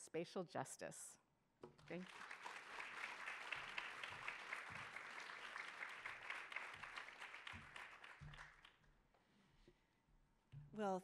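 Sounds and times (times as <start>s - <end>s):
audience applauding: 1.9s - 8.8s.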